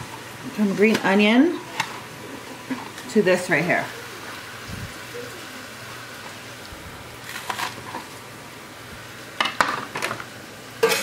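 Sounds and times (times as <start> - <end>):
food sizzling in frying pan: 0.0 - 11.0.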